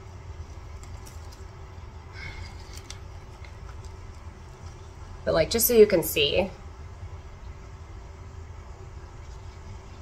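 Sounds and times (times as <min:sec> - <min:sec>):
rustles and clicks of handling: 0:02.2 - 0:04.9.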